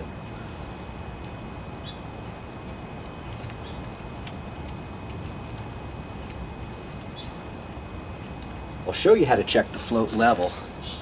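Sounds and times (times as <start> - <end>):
low background rumble: 0.0 - 11.0
light clicks of small metal parts: 2.5 - 8.5.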